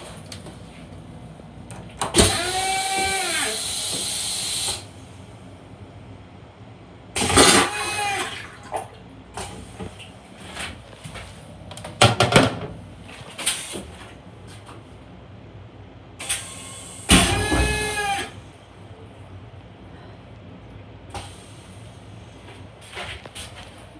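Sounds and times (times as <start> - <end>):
toilet flushing with whine: 2.1 - 5.5, 7.1 - 10.7, 16.2 - 18.9.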